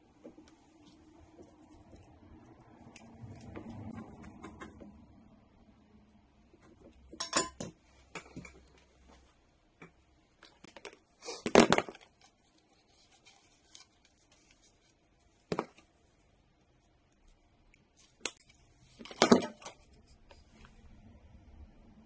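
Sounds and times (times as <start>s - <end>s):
tools clattering: 7.1s - 8.6s
tools clicking and tapping: 7.1s - 8.7s.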